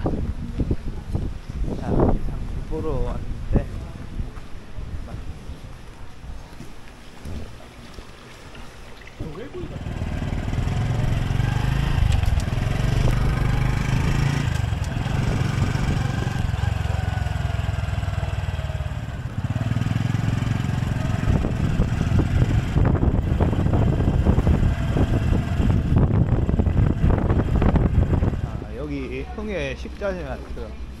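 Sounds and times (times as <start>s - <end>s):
wind buffeting microphone: 0.0s - 7.8s, 9.2s - 31.0s
motorcycle engine running: 9.6s - 29.3s.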